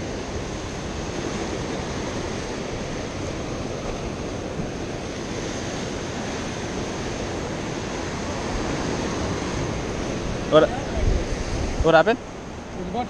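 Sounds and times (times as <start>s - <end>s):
ocean surf washing: 0.0s - 13.0s
wind on microphone: 0.0s - 13.0s.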